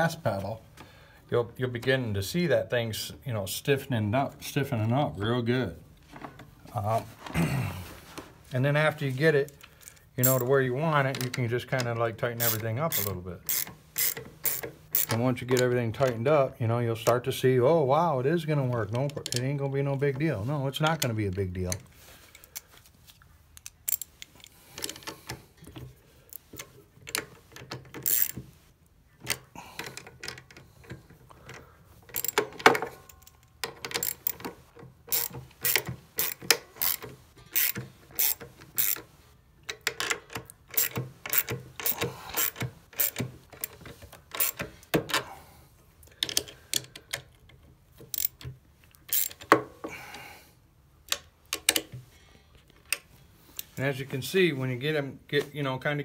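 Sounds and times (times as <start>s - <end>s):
tool clinking on metal: 10.2s - 10.5s
ratchet wrench clicking: 12.4s - 15.2s, 23.6s - 24.1s, 28.0s - 28.4s, 32.1s - 32.4s, 33.9s - 34.5s, 35.1s - 39.0s, 40.8s - 43.2s, 44.4s - 44.6s, 48.1s - 48.4s, 49.1s - 49.5s.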